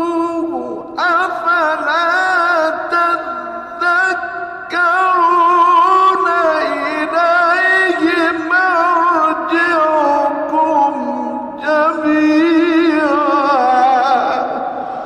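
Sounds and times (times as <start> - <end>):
man chanting quran recitation: 0.0 - 15.0.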